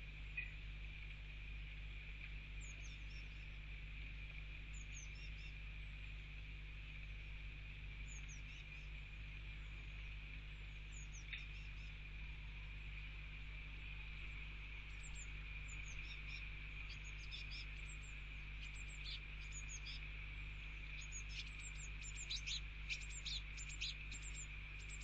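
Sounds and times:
low steady hum: 0.0 - 25.0
songbird high falling calls: 10.8 - 12.0, 14.8 - 25.0.

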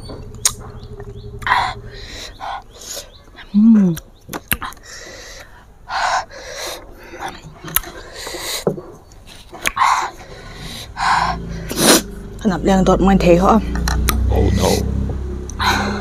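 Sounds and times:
sharp breaths: 1.4 - 3.2, 4.8 - 8.7, 9.3 - 12.2, 15.5 - 16.0
woman humming: 3.4 - 4.0.

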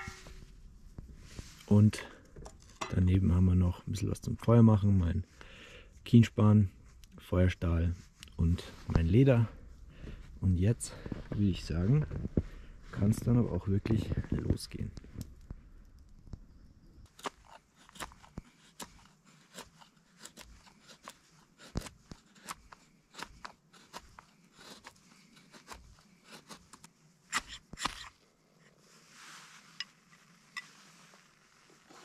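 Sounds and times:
knife scraping wood shavings: 17.2 - 28.1.

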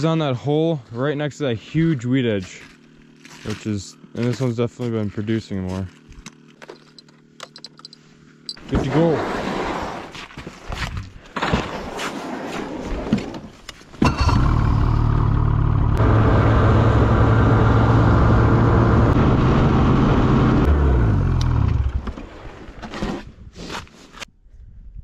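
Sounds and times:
snowmobile engine: 14.0 - 22.1.

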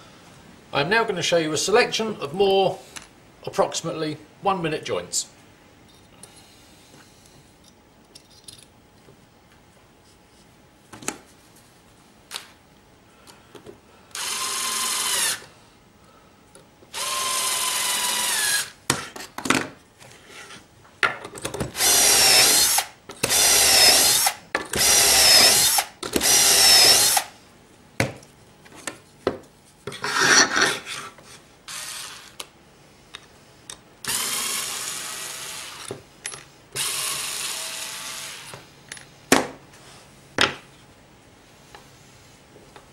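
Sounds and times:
cordless drill boring into wood: 14.1 - 15.5, 16.9 - 18.7, 21.8 - 27.3, 31.7 - 32.4, 34.0 - 35.9, 36.8 - 38.5.

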